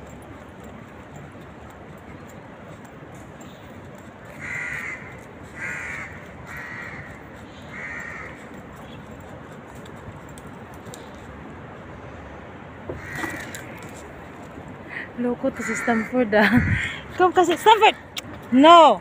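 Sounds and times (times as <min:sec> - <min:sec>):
background hum: 0:00.0 - 0:19.0
crow cawing: 0:04.3 - 0:08.4, 0:12.9 - 0:13.8, 0:15.5 - 0:17.0.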